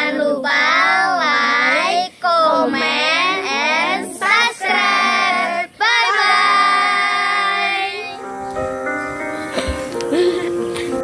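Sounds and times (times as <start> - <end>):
children singing in unison: 0.0 - 8.2.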